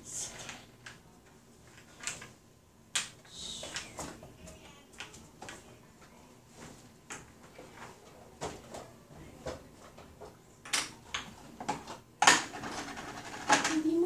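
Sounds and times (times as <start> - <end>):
wooden pieces clacking on board: 2.9 - 4.0, 10.6 - 13.9.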